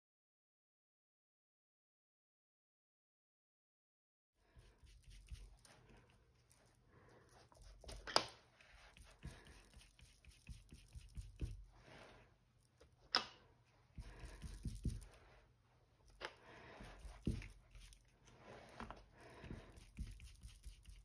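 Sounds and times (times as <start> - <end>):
sponge scuffing on paper: 14.0 - 15.4, 16.7 - 21.0.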